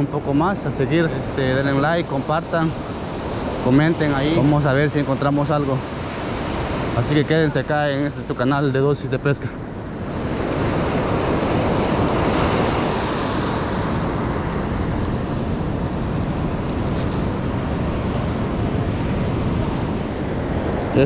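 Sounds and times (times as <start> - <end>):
ocean surf washing onto beach: 0.0 - 21.0
wind on microphone: 9.5 - 21.0.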